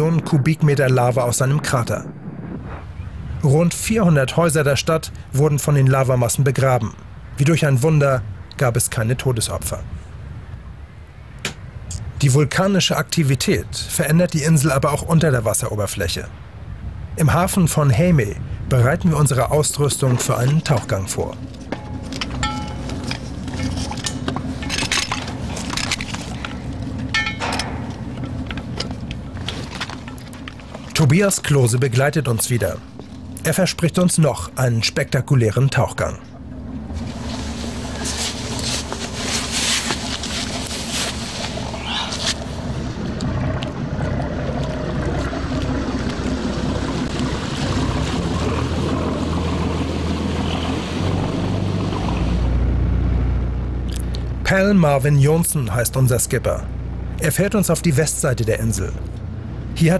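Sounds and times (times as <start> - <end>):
steady low rumble: 0.0 - 59.9
motorboat engine running: 19.8 - 31.1, 32.3 - 33.8, 35.8 - 59.9.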